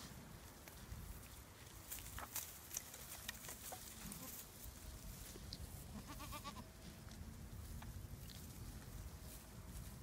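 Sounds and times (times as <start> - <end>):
goat bleating: 3.9 - 4.4, 5.9 - 6.7.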